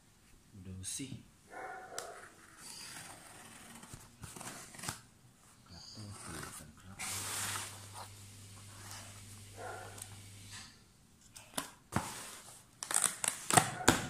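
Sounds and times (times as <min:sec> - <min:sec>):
fingers scraping cardboard: 0:02.0 - 0:05.0
tape tearing rip: 0:02.7 - 0:05.1, 0:12.8 - 0:14.0
packing tape peeling: 0:12.8 - 0:14.0.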